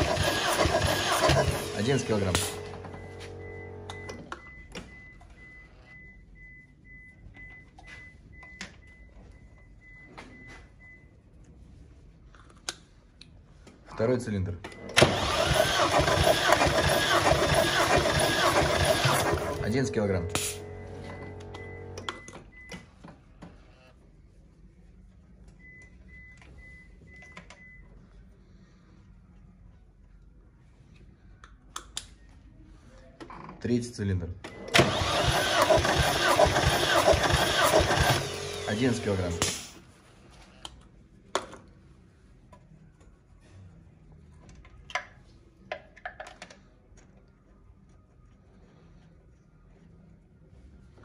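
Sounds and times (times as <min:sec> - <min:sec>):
faint high beeps: 0:02.5 - 0:11.1, 0:19.6 - 0:22.8.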